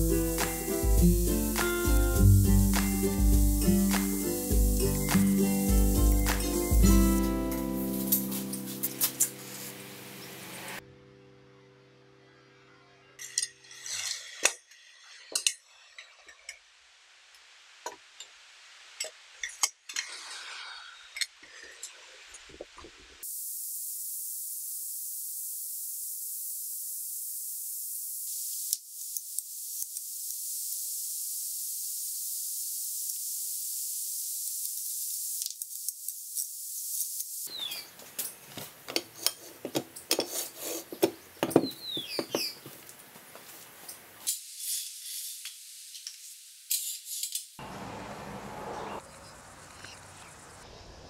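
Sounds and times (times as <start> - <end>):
thin high-pitched hiss: 0.0 - 10.8, 13.1 - 38.5, 43.5 - 47.7
metal scraping: 13.2 - 16.6.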